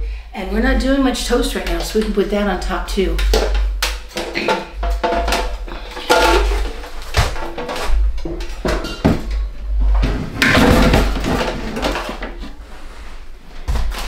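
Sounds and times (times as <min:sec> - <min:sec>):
clatter of kitchen items: 0:03.1 - 0:12.6
kitchen items knocking on a shelf: 0:03.2 - 0:12.4.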